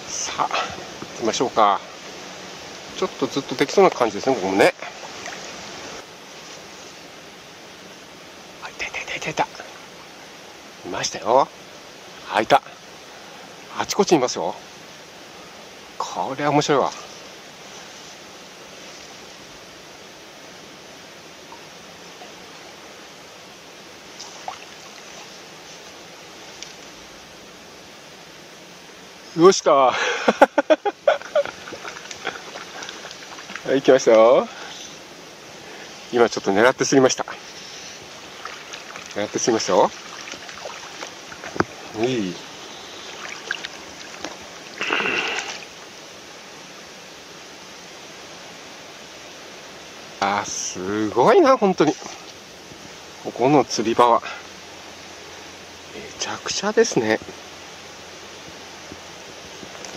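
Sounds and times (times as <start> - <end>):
small stream flowing: 0.0 - 59.9
fish splashing at the surface: 39.9 - 41.6
faint short sounds: 41.4 - 45.7.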